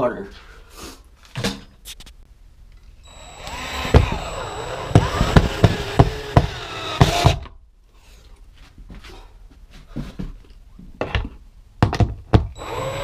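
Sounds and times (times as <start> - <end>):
power drill motor whine: 3.0 - 7.4, 12.6 - 13.0.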